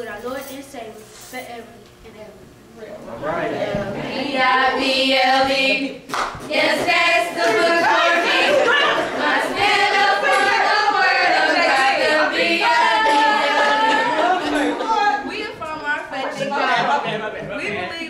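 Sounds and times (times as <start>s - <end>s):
women singing unaccompanied: 3.6s - 15.6s.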